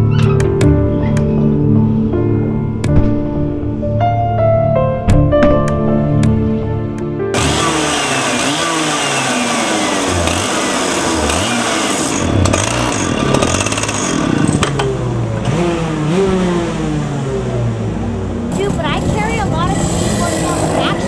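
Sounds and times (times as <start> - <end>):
go-kart engines revving: 7.4 - 21.0.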